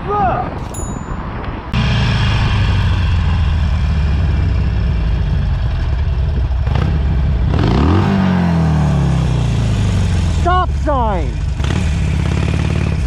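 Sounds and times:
motorcycle engine rumbling: 0.6s - 13.0s.

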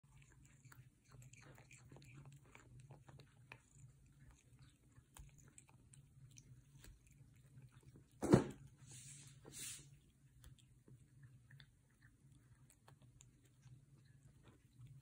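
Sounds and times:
cat chewing grass: 0.0s - 15.0s
loud thump: 8.2s - 8.6s.

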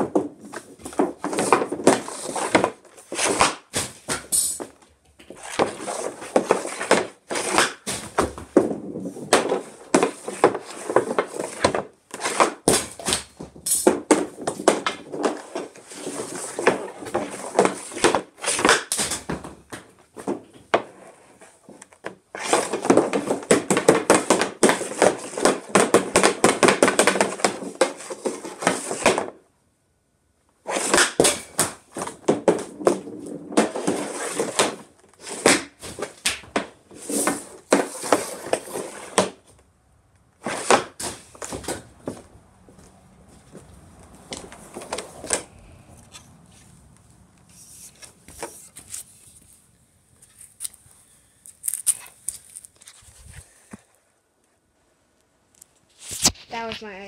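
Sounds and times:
hockey stick and puck clattering: 0.0s - 29.4s, 30.7s - 39.6s, 40.4s - 42.3s, 43.5s - 45.6s.

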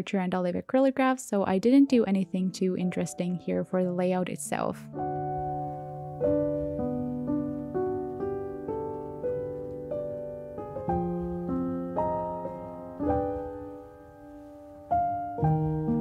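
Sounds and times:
gentle solo piano piece: 4.9s - 16.0s.

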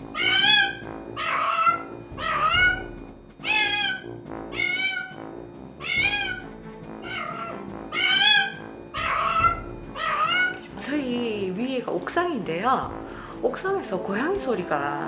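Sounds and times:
cat meowing: 0.0s - 5.2s, 5.8s - 10.7s
light background music: 0.0s - 15.0s.

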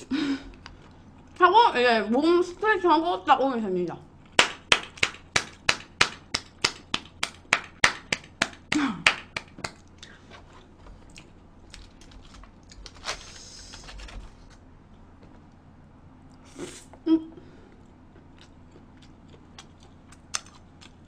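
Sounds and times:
person clapping: 4.4s - 9.8s.

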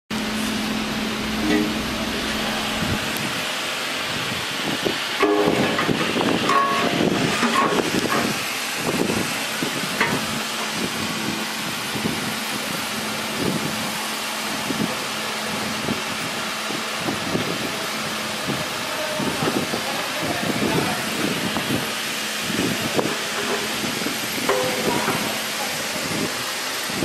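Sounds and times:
machinery hum and hiss: 0.1s - 27.0s
metal chute knocks: 1.4s - 2.8s, 5.2s - 8.3s, 24.4s - 25.3s.

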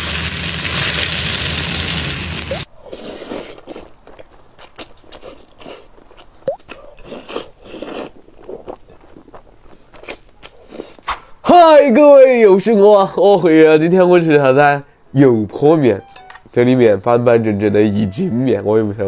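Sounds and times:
hot oil sizzling: 0.0s - 2.7s
noodles slurped and chewed: 2.8s - 11.0s.

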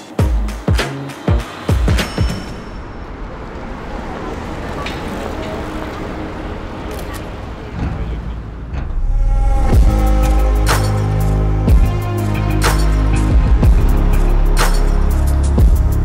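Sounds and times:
music with heavy bass: 0.0s - 2.4s, 9.4s - 16.0s
traffic noise: 0.0s - 16.0s.

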